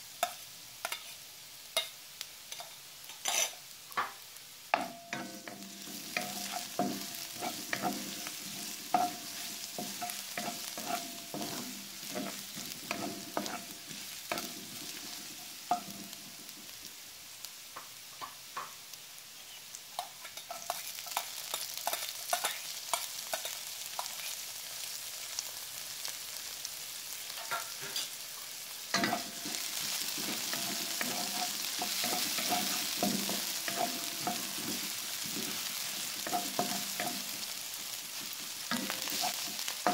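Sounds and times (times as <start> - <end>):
vegetables sizzling in oil: 0.0 - 39.9
wooden spatula scraping pan: 5.5 - 15.2, 29.0 - 37.3, 38.7 - 39.9.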